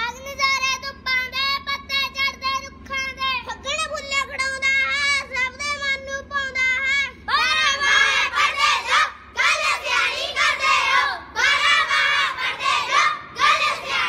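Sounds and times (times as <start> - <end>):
children chanting in chorus: 7.3 - 14.0.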